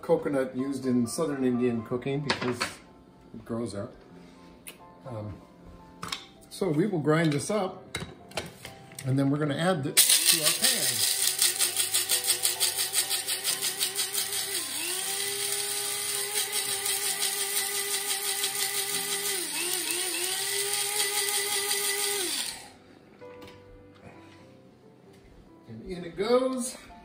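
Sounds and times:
seeds rattling in grinder: 10.0 - 22.6
spice grinder motor whine: 10.0 - 22.8.

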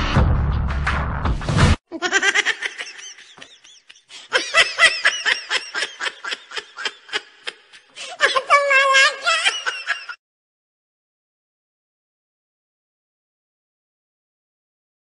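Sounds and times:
music: 0.0 - 1.8
high-pitched laughter: 1.9 - 10.2.

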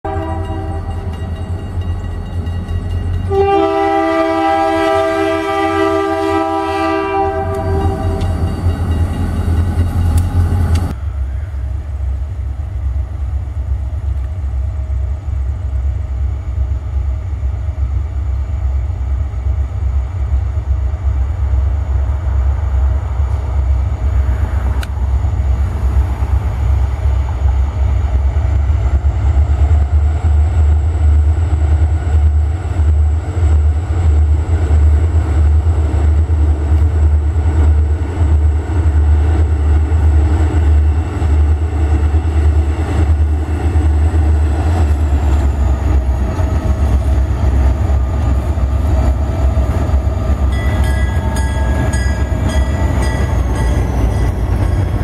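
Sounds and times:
locomotive air horn chord: 0.1 - 1.0, 3.3 - 8.4.

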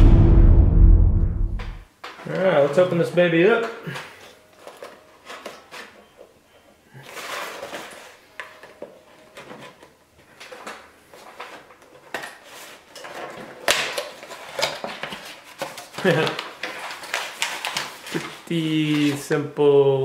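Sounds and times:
cardboard rustling: 4.0 - 6.1, 7.0 - 19.3.

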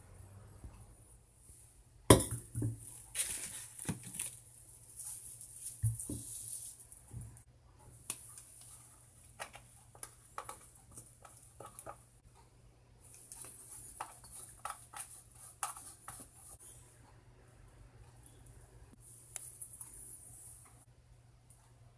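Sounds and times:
plastic bag rustling: 2.9 - 7.1.

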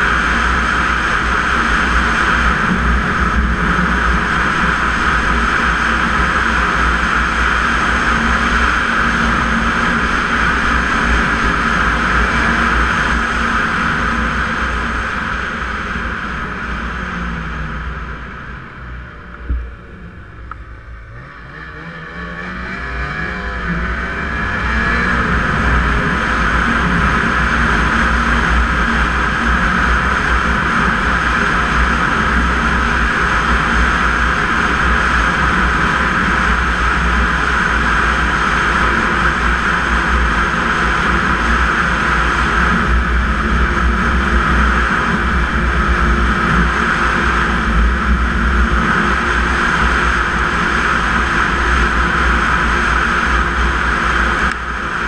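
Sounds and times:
snowmobile engine: 0.0 - 55.0.

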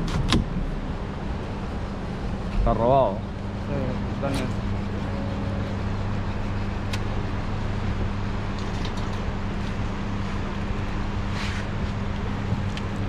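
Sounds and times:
boat engine running: 1.8 - 11.2.

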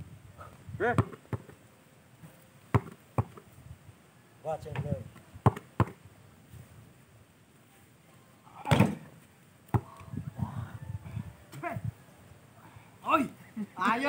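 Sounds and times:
basketball bouncing on dirt: 0.8 - 1.6, 2.2 - 3.5, 4.7 - 6.0, 8.7 - 10.0
ball striking backboard: 2.7 - 3.4, 5.4 - 6.0, 8.7 - 9.0.

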